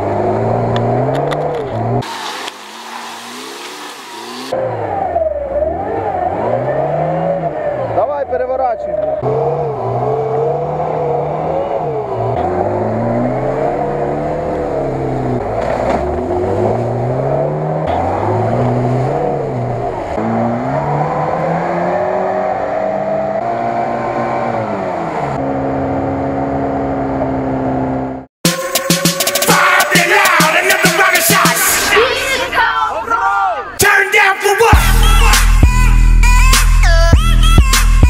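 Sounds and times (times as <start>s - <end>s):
car engine revving hard: 0.0s - 28.3s.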